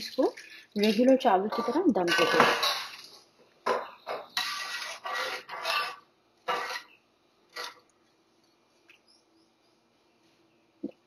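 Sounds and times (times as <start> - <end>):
metal spoon stirring in metal pot: 0.0 - 7.9.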